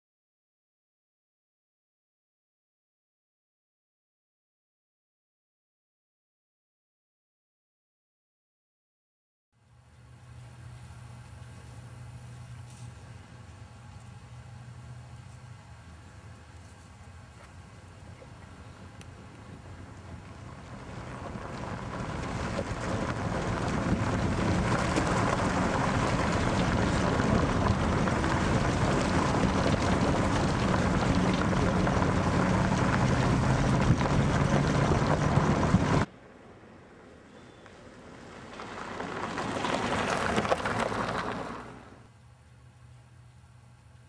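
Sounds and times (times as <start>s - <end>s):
low engine hum: 9.6s - 44.0s
vehicle road and wind noise: 9.9s - 42.2s
car passing close by: 37.8s - 42.0s.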